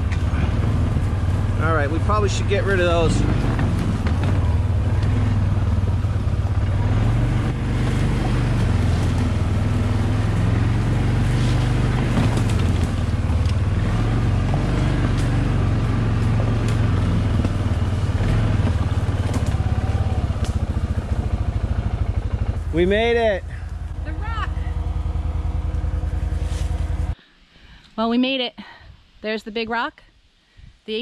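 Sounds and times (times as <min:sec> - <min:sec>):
atv engine droning: 0:00.0 - 0:27.2
knocks and rattles from bumps: 0:01.6 - 0:05.4, 0:10.0 - 0:21.1.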